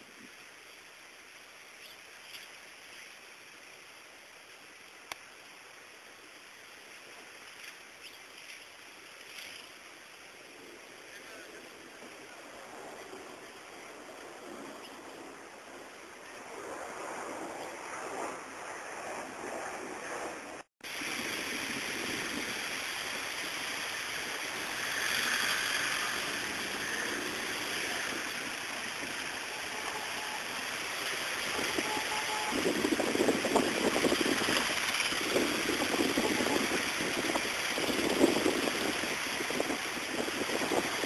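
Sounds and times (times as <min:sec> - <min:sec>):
river rushing in flood: 0:20.9 - 0:41.0.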